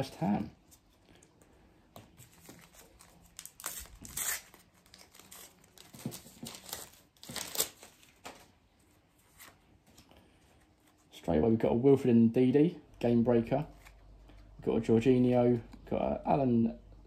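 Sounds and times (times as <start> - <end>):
foil wrapper tearing and crinkling: 2.6 - 8.4.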